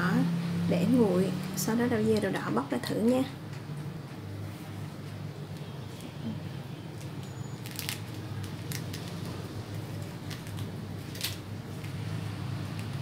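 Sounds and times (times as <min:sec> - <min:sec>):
leaf wrapper crackling: 0:06.9 - 0:13.0.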